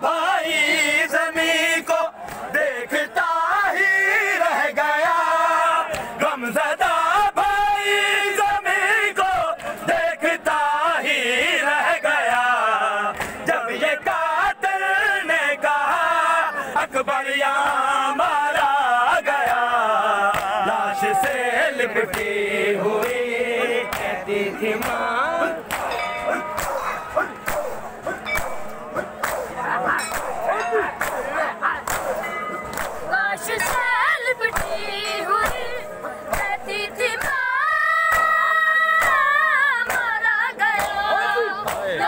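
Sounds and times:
men chanting a lament: 0.0s - 42.0s
hands slapping on chests: 13.1s - 13.4s, 19.4s - 21.4s, 22.0s - 22.4s, 23.0s - 33.9s, 34.5s - 36.6s, 37.2s - 37.4s, 41.6s - 42.0s.

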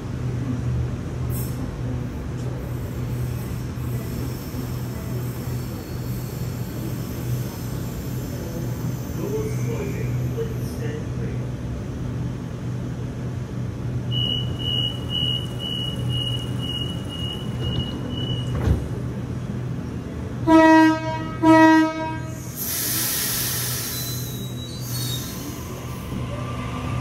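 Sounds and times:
train low hum: 0.0s - 27.0s
short high beeps: 14.1s - 18.5s
train horn blasts: 20.4s - 22.4s
hiss: 22.4s - 26.0s.

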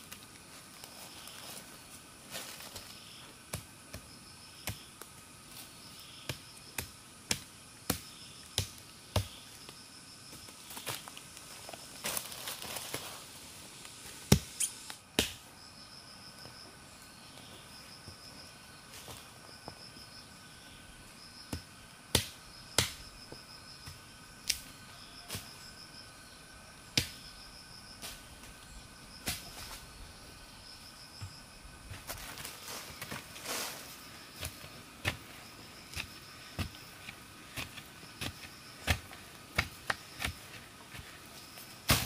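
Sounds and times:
insects chirping: 0.0s - 42.0s.

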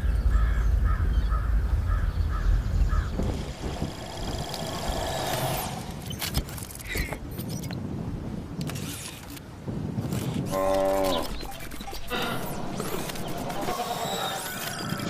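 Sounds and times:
low rumble: 0.0s - 6.2s
bird cawing: 0.3s - 5.9s
sci-fi robot hovering hum: 2.9s - 6.3s, 10.5s - 15.0s.

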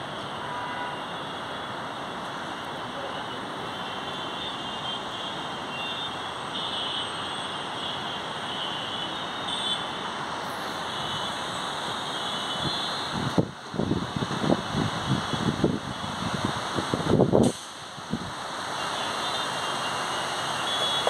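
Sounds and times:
city ambience hiss: 0.0s - 21.0s.

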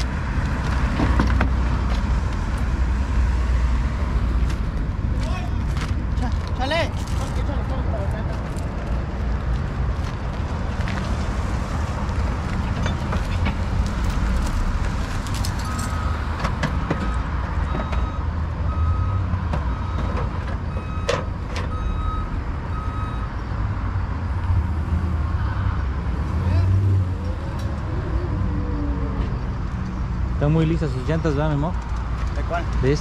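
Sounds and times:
reversing alarm beeping: 15.6s - 23.5s.

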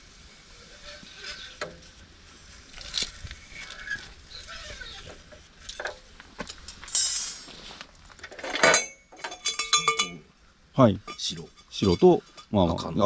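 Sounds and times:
metallic knocks and clicks of pipe: 8.3s - 10.3s.

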